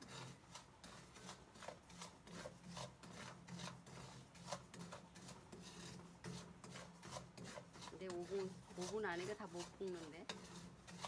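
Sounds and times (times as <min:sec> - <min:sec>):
spatula scraping salt in wok: 0:00.0 - 0:11.0.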